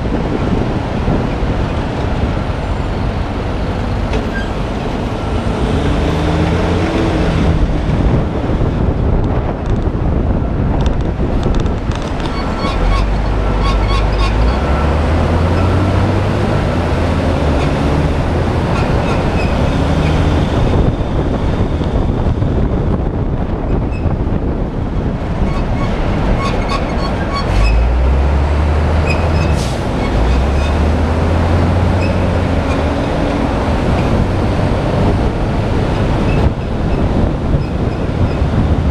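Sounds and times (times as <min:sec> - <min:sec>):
car engine: 0:00.0 - 0:38.9
passing traffic: 0:00.0 - 0:38.9
tyres and wind rumble: 0:00.0 - 0:38.9.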